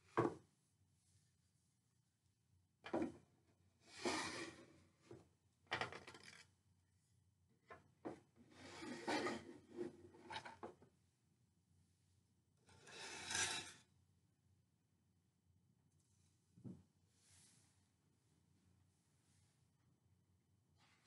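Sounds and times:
wooden panels scraping: 0:08.6 - 0:10.6.

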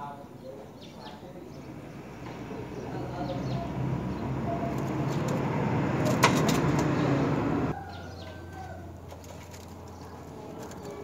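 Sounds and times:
bird wings flapping: 0:04.7 - 0:07.0, 0:09.0 - 0:11.0.

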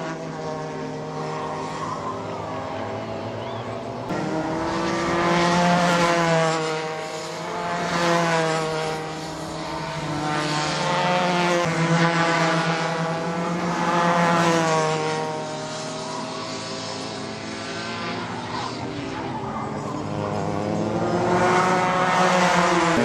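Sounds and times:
kart engines buzzing at high revs: 0:00.0 - 0:23.0.

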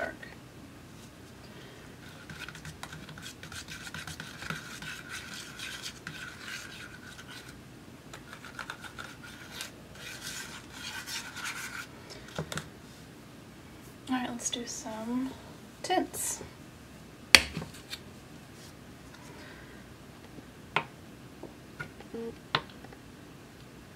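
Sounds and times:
palette knife scraping paint cup: 0:02.0 - 0:07.6, 0:08.2 - 0:11.9.

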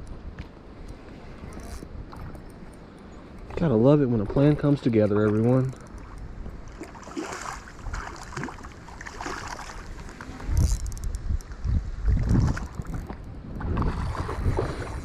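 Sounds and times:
wind rumbling on microphone: 0:00.0 - 0:15.0
water splashing at bank: 0:03.4 - 0:10.5.

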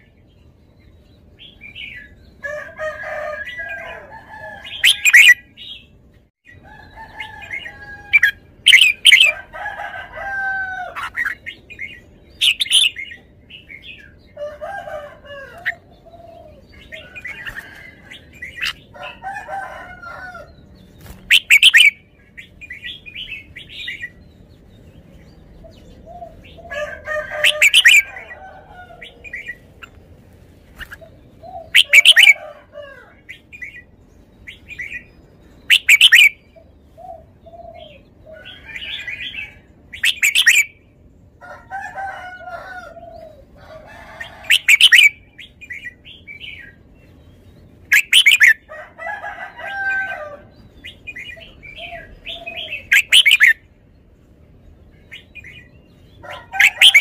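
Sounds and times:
soft bird warbling chatter: 0:00.0 - 0:32.5
bird song phrases: 0:00.0 - 0:57.0.

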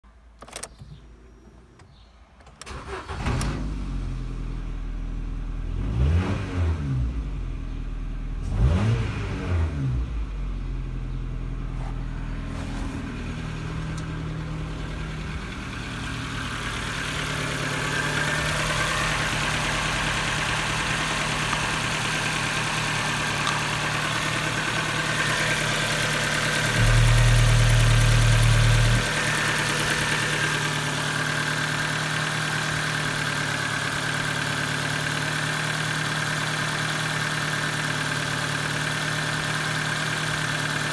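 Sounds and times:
car engine idling: 0:10.3 - 0:40.9
low rumble: 0:12.1 - 0:31.5.

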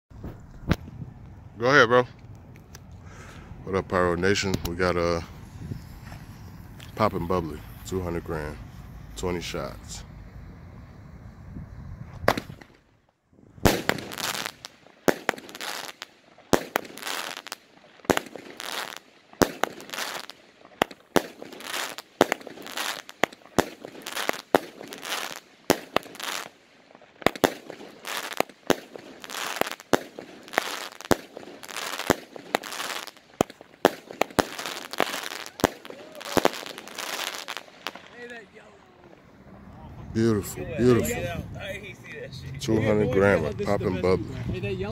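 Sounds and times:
firework shots with crackle: 0:00.2 - 0:01.0, 0:04.2 - 0:09.8, 0:12.1 - 0:38.4.

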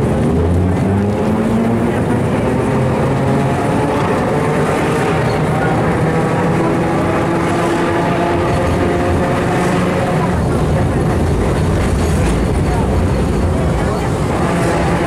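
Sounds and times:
tram wheels rumbling on rails: 0:00.0 - 0:15.0.

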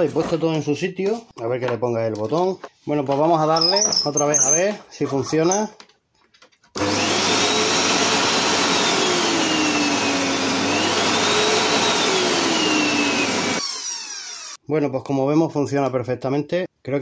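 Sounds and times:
vacuum cleaner motor running: 0:06.8 - 0:14.6.

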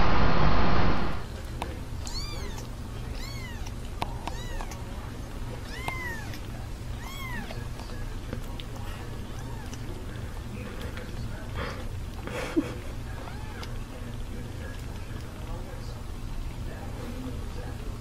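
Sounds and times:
kitten mewing: 0:02.0 - 0:04.9, 0:05.6 - 0:08.1, 0:09.2 - 0:09.9, 0:13.1 - 0:13.8.

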